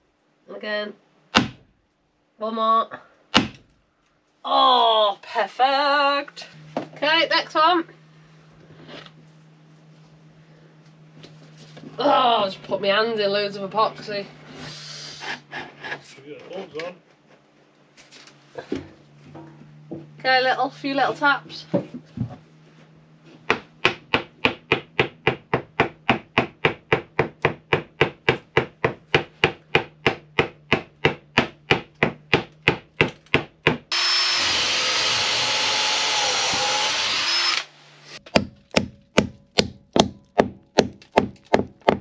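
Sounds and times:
power tool running: 33.9s - 38.2s
rapid hammer taps: 38.3s - 42.0s.

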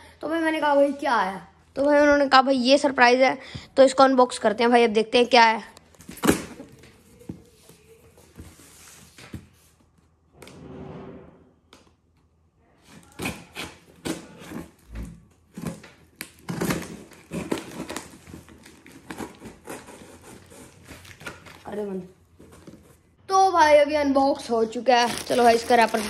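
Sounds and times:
knife slitting packing tape: 12.9s - 14.8s, 15.6s - 21.7s.

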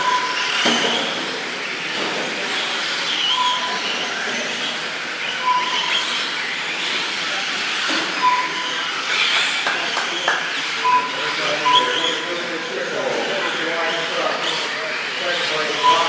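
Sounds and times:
short electronic beeps: 0.0s - 0.5s, 3.3s - 3.9s, 5.4s - 6.1s, 8.2s - 8.8s, 10.8s - 12.3s, 15.8s - 16.0s
rc truck motors whining: 0.0s - 16.0s.

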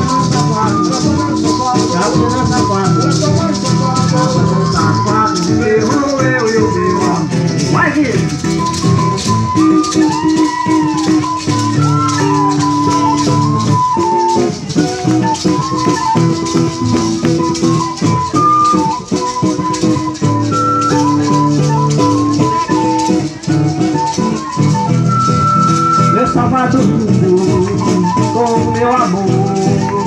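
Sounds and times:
flute melody: 0.0s - 30.0s
maracas shaking: 0.0s - 30.0s
strummed acoustic guitar: 0.0s - 30.0s.

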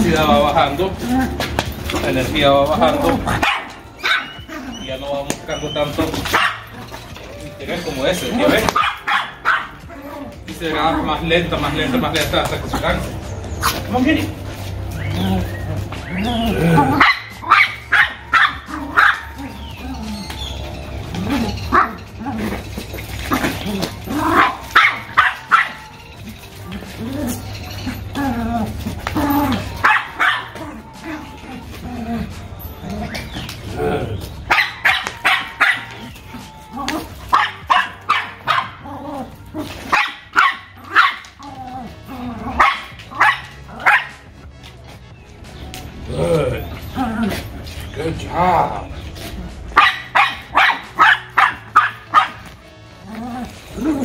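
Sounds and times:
puppies barking in sharp yaps: 0.0s - 45.1s, 46.7s - 54.0s
dog barking: 3.3s - 4.8s, 6.1s - 7.0s, 8.4s - 10.2s, 16.3s - 19.9s, 21.3s - 22.6s, 24.2s - 26.0s, 29.5s - 30.8s, 34.5s - 36.2s, 36.8s - 38.9s, 39.6s - 41.5s, 42.4s - 44.3s, 49.7s - 52.6s.

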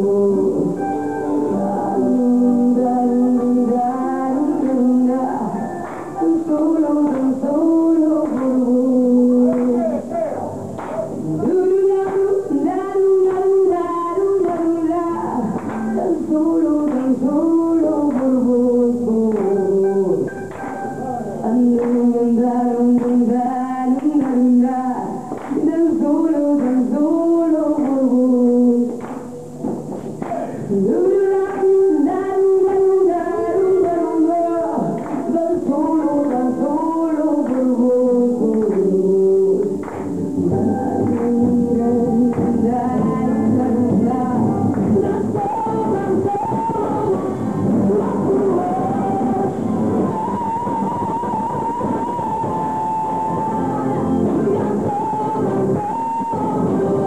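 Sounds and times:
woman singing: 0.0s - 10.1s, 10.8s - 20.6s, 21.3s - 29.3s, 30.6s - 57.0s
electric guitar: 0.0s - 57.0s
live band with electric guitar: 38.8s - 57.0s
drum kit: 39.6s - 57.0s.

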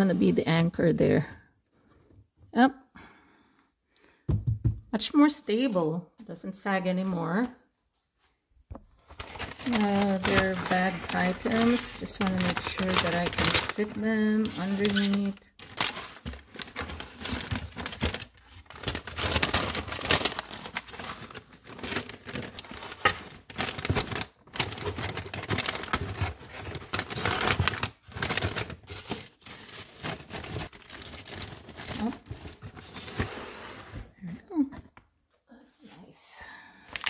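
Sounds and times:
plastic bags crinkling: 9.0s - 33.2s.

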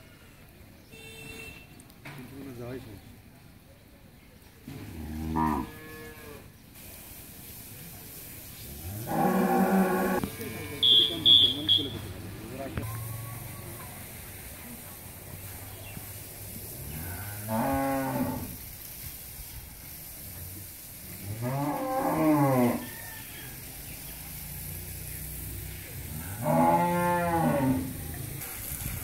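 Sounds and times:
cows mooing: 4.7s - 6.4s, 8.9s - 10.9s, 16.9s - 18.5s, 21.4s - 22.9s, 26.1s - 28.0s.

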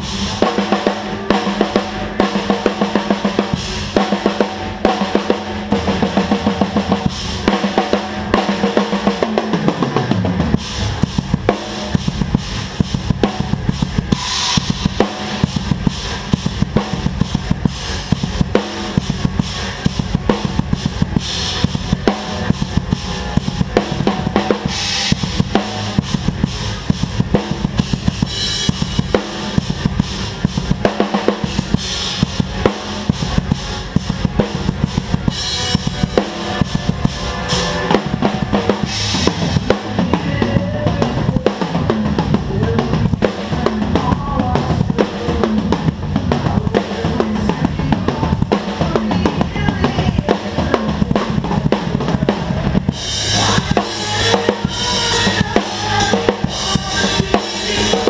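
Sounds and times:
cymbal crash: 0.0s - 40.2s
band holding low note: 0.0s - 58.0s
bass drum and snare beat: 0.0s - 58.0s.

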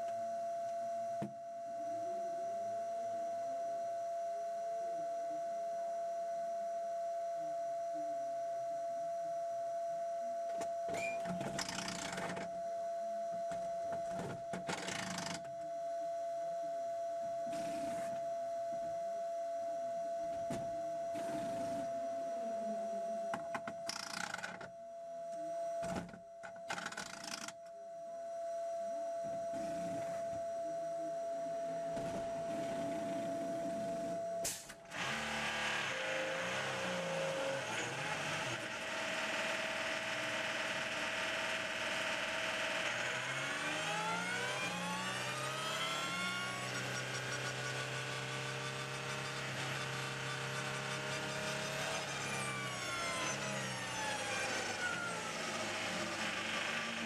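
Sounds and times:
high electrical whine: 10.0s - 57.0s
bursts of mechanical noise: 34.7s - 57.0s.

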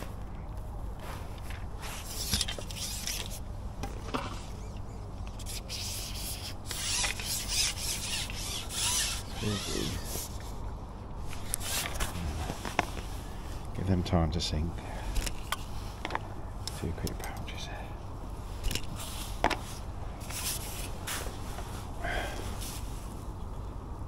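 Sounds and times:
fishing pole rubbing and scraping: 1.0s - 3.5s, 4.1s - 10.6s, 11.2s - 13.6s, 18.5s - 21.7s.

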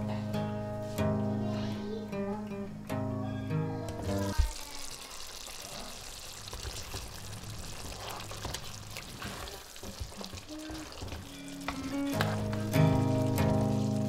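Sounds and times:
curry bubbling and sizzling: 4.0s - 14.0s
spatula stirring: 5.7s - 14.0s.

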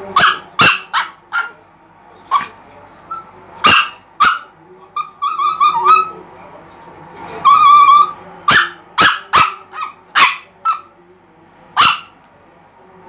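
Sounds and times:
small dog yipping: 0.2s - 1.5s, 2.3s - 6.2s, 7.4s - 10.9s
small dog whining: 5.0s - 6.2s, 7.2s - 8.2s.

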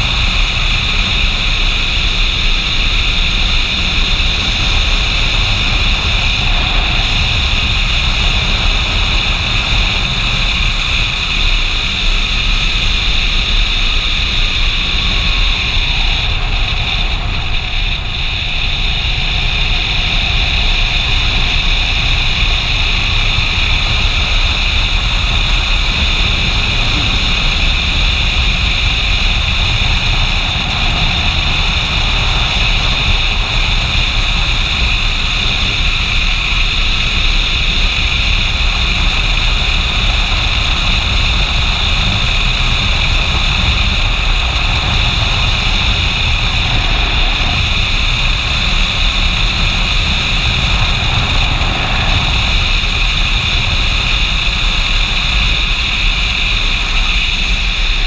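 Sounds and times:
motorcycle engine running: 0.0s - 58.0s
wind noise on microphone: 0.0s - 58.0s.

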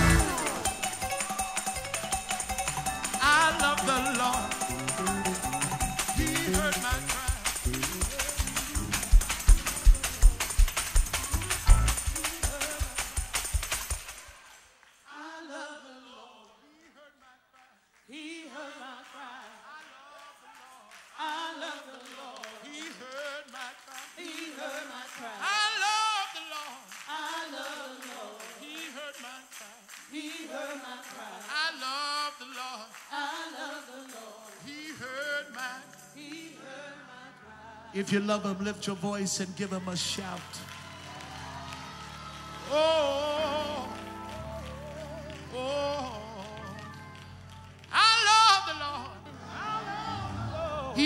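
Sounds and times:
band music: 0.0s - 14.1s, 37.9s - 51.0s
unaccompanied gospel singing: 0.0s - 51.0s.

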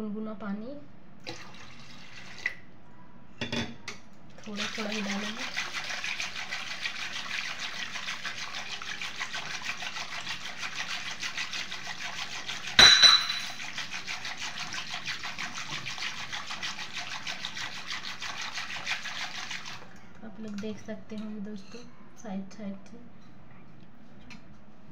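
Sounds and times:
whisk sloshing cream in pot: 4.4s - 20.8s.

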